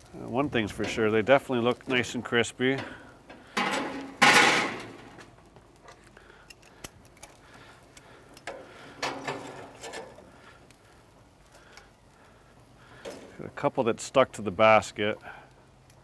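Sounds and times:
metal basket rattling on grill: 0:01.9 - 0:05.2, 0:08.6 - 0:10.2.

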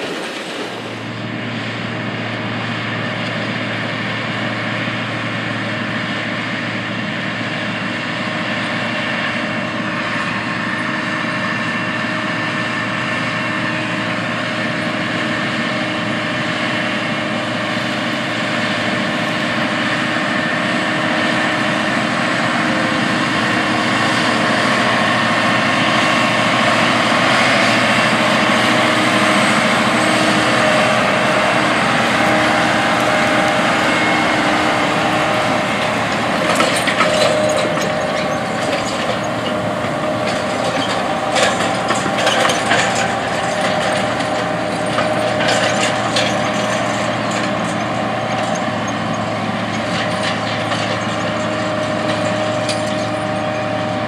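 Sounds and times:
tractor engine running under load: 0:00.0 - 0:54.0
planter clattering and knocking: 0:21.0 - 0:54.0.

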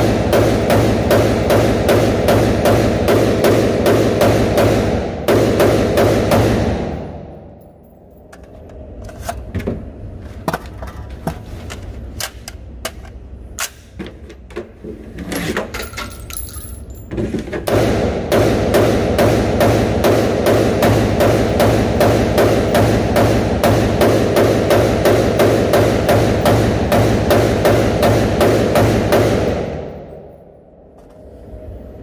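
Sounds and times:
rapid rifle fire: 0:00.0 - 0:07.3, 0:17.6 - 0:30.3.

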